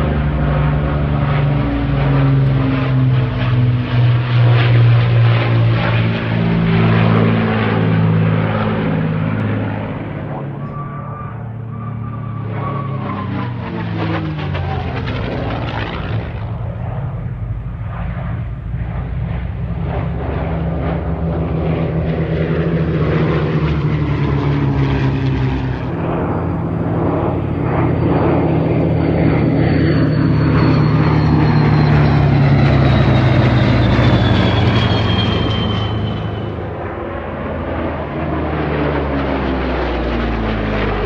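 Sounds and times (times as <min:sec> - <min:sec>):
propeller planes flying past: 0:00.0 - 0:41.0
thin high whine: 0:26.5 - 0:36.8.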